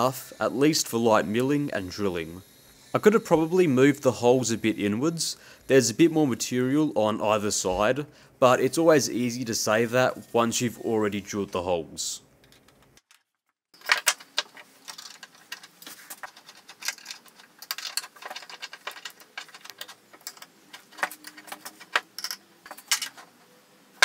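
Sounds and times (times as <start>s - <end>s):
metal vise parts clicking: 13.8s - 23.5s.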